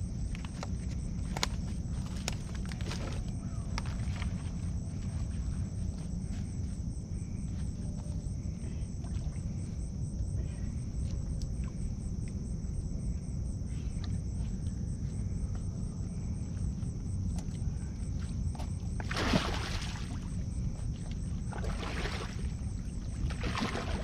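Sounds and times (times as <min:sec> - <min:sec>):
constant low rumble: 0:00.0 - 0:24.0
night insects chorus: 0:00.0 - 0:24.0
faint clicks and rustles: 0:00.1 - 0:08.4.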